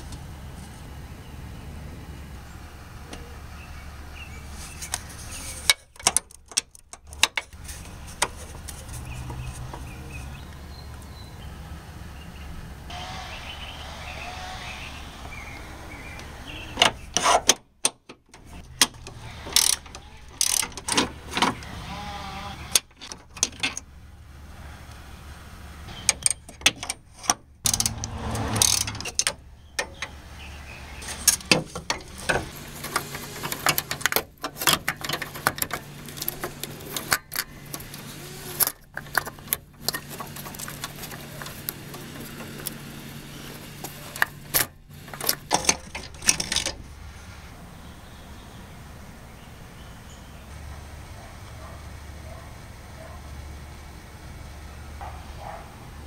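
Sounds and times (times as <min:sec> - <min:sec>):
ratchet clicking: 0:18.8 - 0:20.9, 0:26.1 - 0:30.1
metal clanks: 0:31.0 - 0:46.8.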